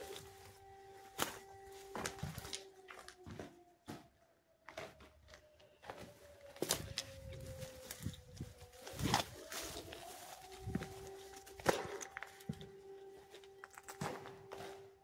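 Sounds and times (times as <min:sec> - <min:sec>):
footsteps on concrete rubble: 0:00.0 - 0:15.0
pushing through tall weeds: 0:07.8 - 0:12.4.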